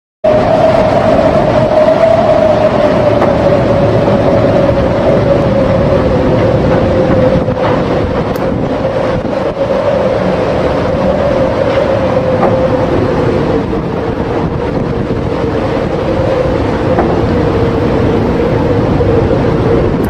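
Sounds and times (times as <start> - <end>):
low drone: 0.2 - 20.0
wind rushing: 0.2 - 20.0.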